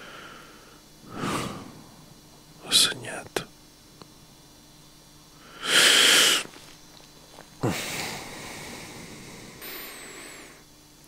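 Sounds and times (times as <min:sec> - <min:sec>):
breathy hiss: 0:00.0 - 0:11.0
sharp sniff: 0:01.1 - 0:01.7.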